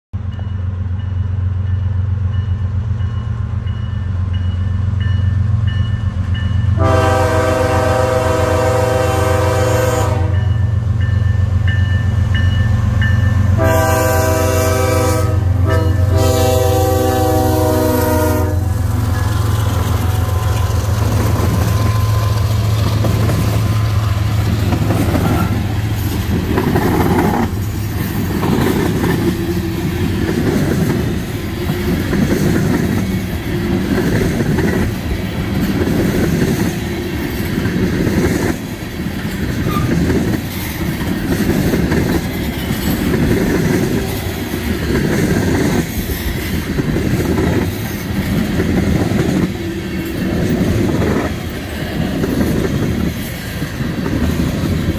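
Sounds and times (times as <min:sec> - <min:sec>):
crossing bell ringing: 0:00.2 - 0:07.1, 0:10.2 - 0:14.5, 0:15.2 - 0:24.6
diesel locomotives approaching: 0:00.2 - 0:54.9
train cars rumbling and clattering: 0:00.2 - 0:54.9
locomotive air horn: 0:06.8 - 0:10.6, 0:13.5 - 0:22.7, 0:39.6 - 0:40.0.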